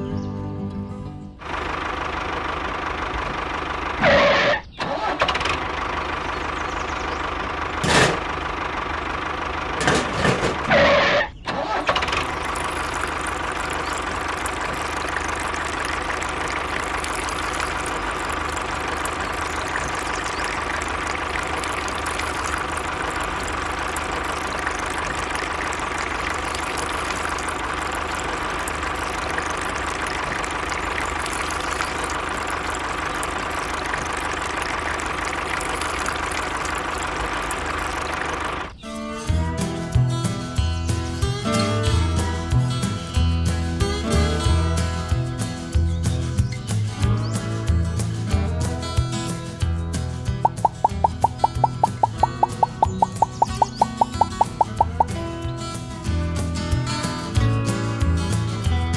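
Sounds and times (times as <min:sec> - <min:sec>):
tractor engine running: 0:00.0 - 0:58.9.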